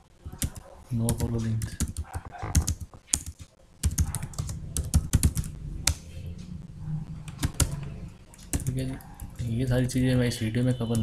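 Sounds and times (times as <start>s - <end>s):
low steady hum: 3.6s - 11.0s.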